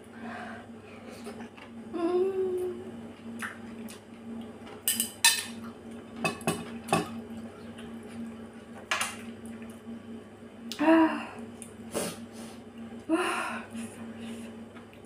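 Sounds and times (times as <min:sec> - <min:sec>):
person humming while chewing: 0:01.2 - 0:03.0, 0:10.7 - 0:12.1.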